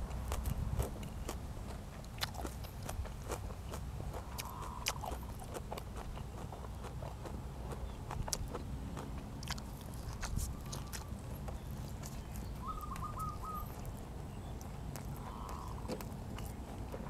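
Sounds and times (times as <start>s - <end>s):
chewing with sharp clicks: 0.1s - 17.0s
bird calling short notes: 12.6s - 13.8s.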